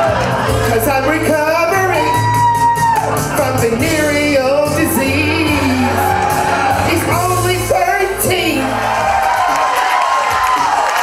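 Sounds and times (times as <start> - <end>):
recorded backing track: 0.0 - 11.0
person singing into microphone: 3.4 - 8.9.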